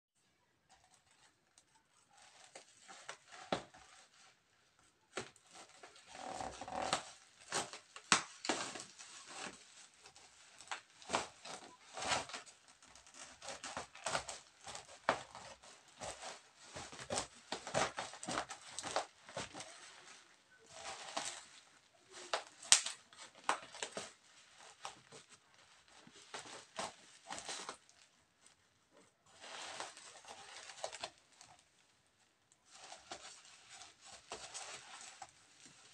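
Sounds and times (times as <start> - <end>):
plastic crackling and tearing: 0.7 - 28.7, 29.3 - 35.9
scissors cutting plastic: 5.1 - 20.1.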